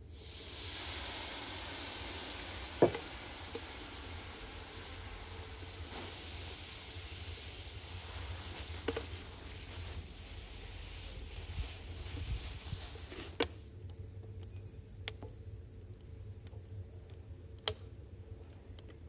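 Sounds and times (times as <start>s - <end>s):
water sizzling on hot metal: 0.0s - 13.6s.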